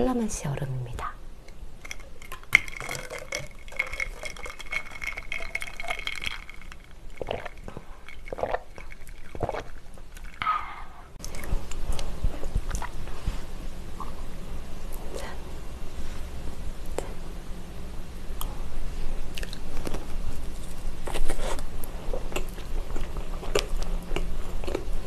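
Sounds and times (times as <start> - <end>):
ice clinking in glass jar: 1.8 - 9.7
swallowing: 7.2 - 13.0.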